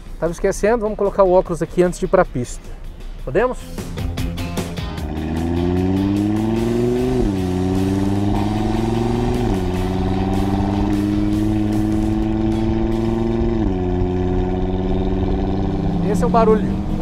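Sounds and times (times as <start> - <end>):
car engine accelerating hard: 3.8 - 17.0.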